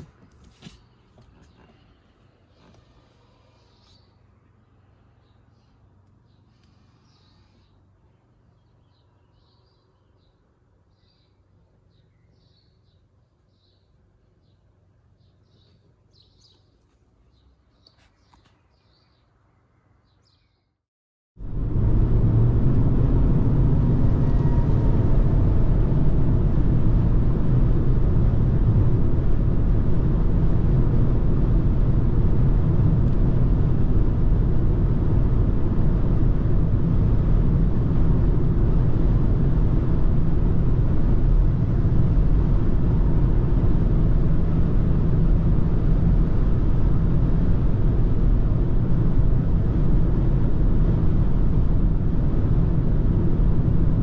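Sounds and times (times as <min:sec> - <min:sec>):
road and wind noise in car cabin: 0:00.0 - 0:18.9, 0:21.4 - 0:54.0
low engine hum: 0:21.4 - 0:54.0.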